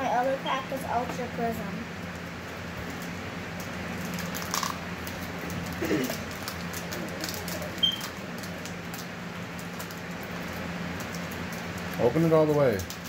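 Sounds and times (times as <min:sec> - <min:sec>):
steady low hum: 0:00.0 - 0:13.0
foil wrappers crinkling and tearing: 0:02.9 - 0:13.0.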